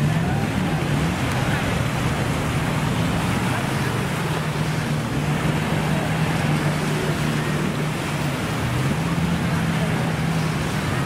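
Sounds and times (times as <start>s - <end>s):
surf washing onto beach: 0.0s - 11.0s.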